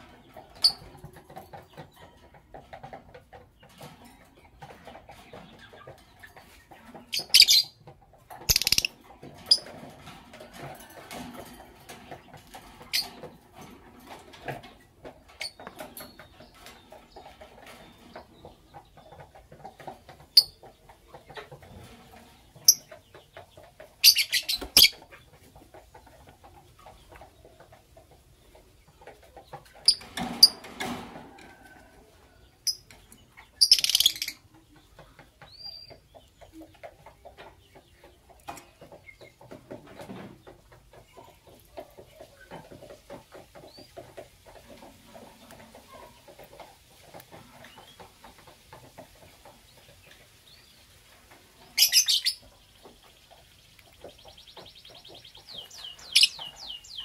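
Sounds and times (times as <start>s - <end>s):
birds chirping shrilly: 51.7s - 52.5s, 54.2s - 57.0s.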